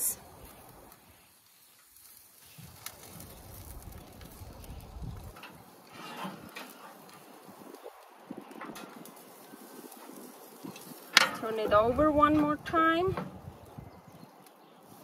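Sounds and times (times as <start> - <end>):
metal grill basket clicks and knocks: 5.3 - 7.3, 8.5 - 9.2, 10.0 - 13.4.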